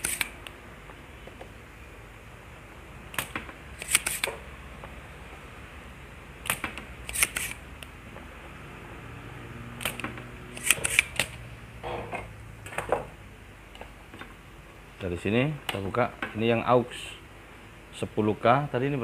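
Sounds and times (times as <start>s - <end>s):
desoldering pump snapping clicks: 6.4s - 7.9s, 9.8s - 11.4s.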